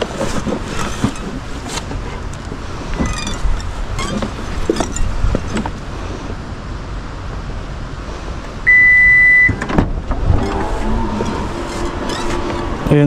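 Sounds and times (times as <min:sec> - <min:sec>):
steady low rumble: 0:00.0 - 0:13.0
high electronic beep: 0:08.7 - 0:09.6.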